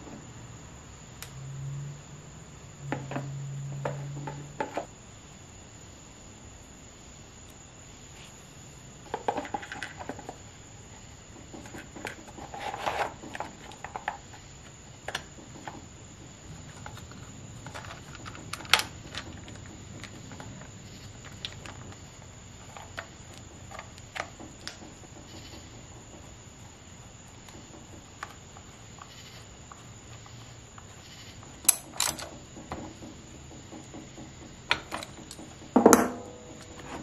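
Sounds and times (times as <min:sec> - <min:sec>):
plastic parts clicking and rattling: 0:16.6 - 0:22.0, 0:31.6 - 0:33.1.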